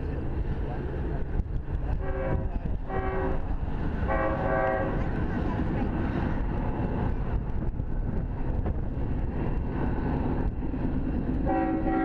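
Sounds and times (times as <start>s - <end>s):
diesel train rumbling: 0.0s - 12.0s
train horn: 2.0s - 3.4s, 4.1s - 5.0s, 11.4s - 12.0s.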